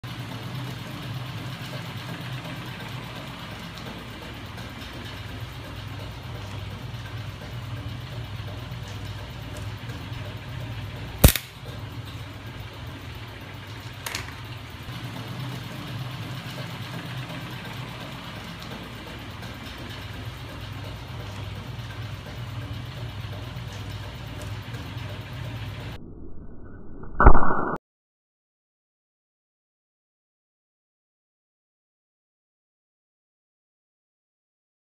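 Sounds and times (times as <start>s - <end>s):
loud electrical crack: 11.2s - 11.6s
sharp click: 11.2s - 11.6s.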